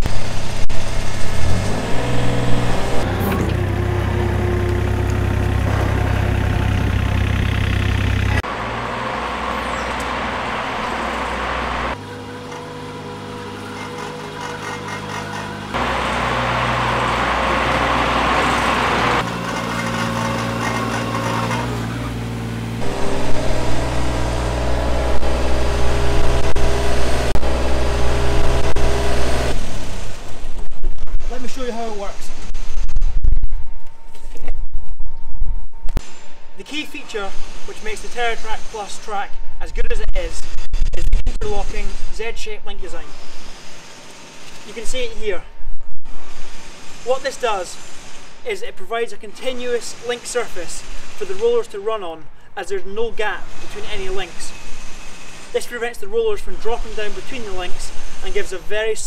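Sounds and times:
excavator diesel engine running: 0:00.0 - 0:30.1.

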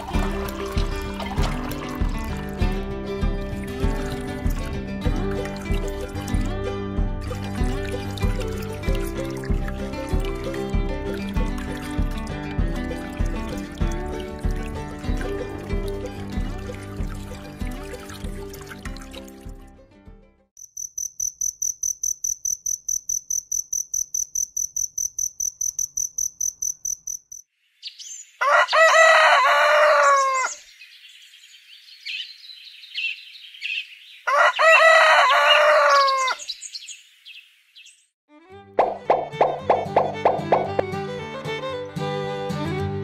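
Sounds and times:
rooster crowing: 0:28.4 - 0:30.6, 0:34.3 - 0:36.5
birds chirping: 0:30.1 - 0:38.1.

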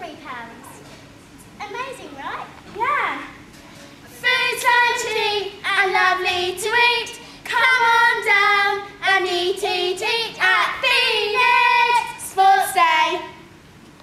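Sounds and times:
girls singing unaccompanied: 0:04.1 - 0:13.5.

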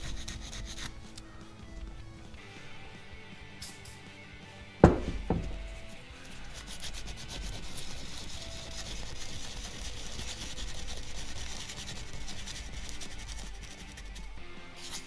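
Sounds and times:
sandpaper scrubbing metal: 0:00.0 - 0:01.2, 0:05.3 - 0:15.0.

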